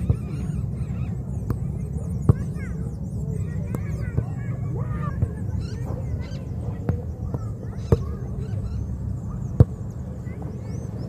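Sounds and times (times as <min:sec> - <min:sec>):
birds calling: 0:00.0 - 0:11.0
football being kicked: 0:02.3 - 0:02.5.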